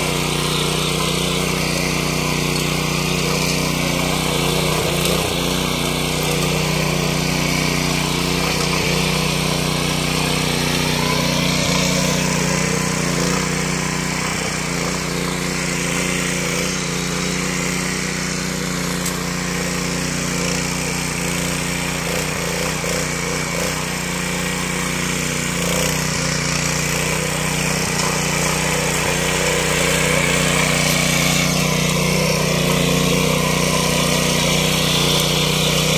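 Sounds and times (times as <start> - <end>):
rotary tiller engine running: 0.0 - 35.9.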